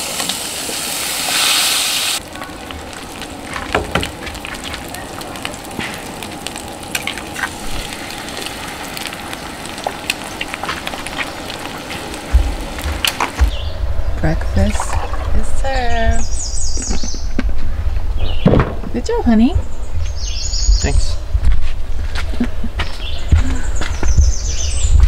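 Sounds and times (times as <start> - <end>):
food sizzling in a pan: 0.0 - 13.4.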